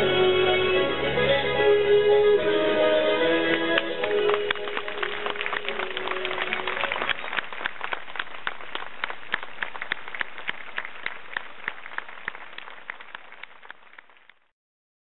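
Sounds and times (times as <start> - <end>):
crowd applauding: 2.6 - 14.5
nearby hand claps: 3.5 - 14.2.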